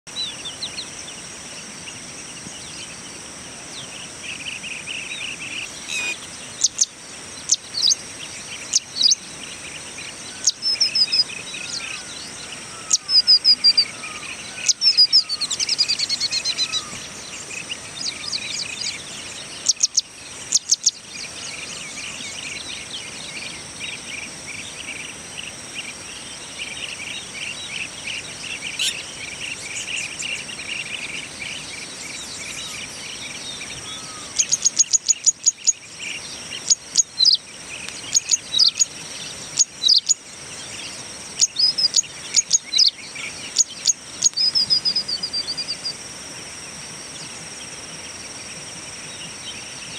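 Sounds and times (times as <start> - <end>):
birds chirping and trilling: 0.1 - 49.9
high insect drone: 0.2 - 49.9
soft buzzy calls: 4.4 - 20.7.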